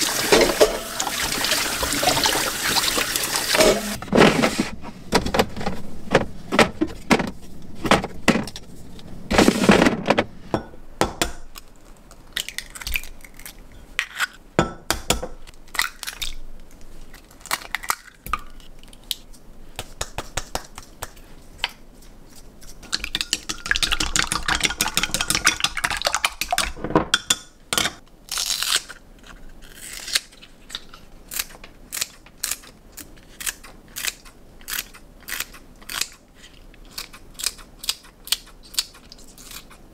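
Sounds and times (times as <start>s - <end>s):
eggs and containers clicking: 22.9s - 27.3s.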